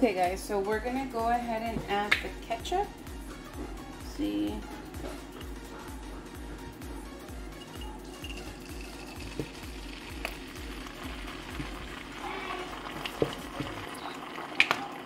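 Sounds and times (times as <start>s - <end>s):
background music with a beat: 0.1s - 12.0s
oil sizzling in a pan: 8.6s - 15.0s.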